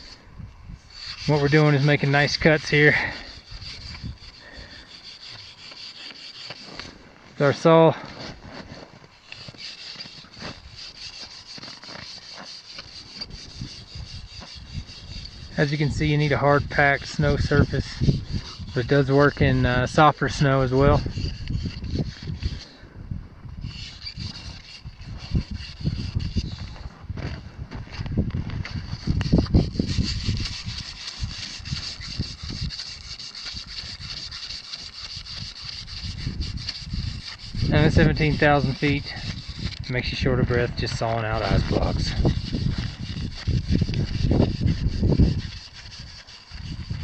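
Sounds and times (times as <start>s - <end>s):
snow saw rasping through snow: 0.8s - 22.8s, 23.6s - 27.0s, 28.6s - 47.0s.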